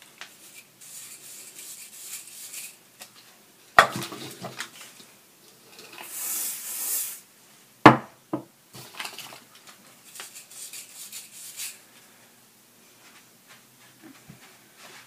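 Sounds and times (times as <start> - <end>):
brush rasping through hair: 0.3 - 2.8, 10.0 - 11.8
aerosol hairspray hiss: 6.0 - 7.3.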